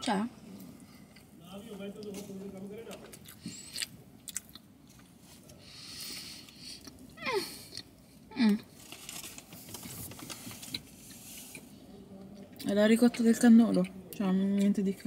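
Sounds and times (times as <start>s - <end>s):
mouth clicks and smacks eating: 2.9s - 5.1s, 12.4s - 14.8s
breathing through the nose: 5.6s - 6.9s
paper wrapper rustling: 8.8s - 10.9s.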